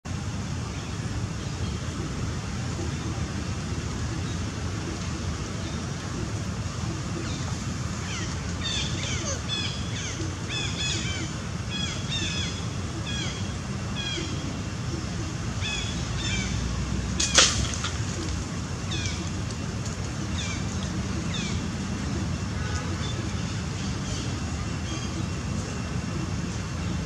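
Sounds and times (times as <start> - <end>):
low steady rumble: 0.1 - 27.0
sharp crack: 17.2 - 18.4.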